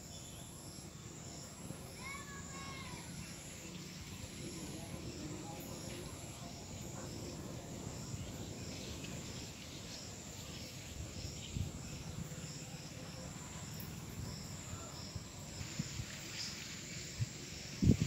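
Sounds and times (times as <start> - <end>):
wind rumble on microphone: 4.3 - 18.0.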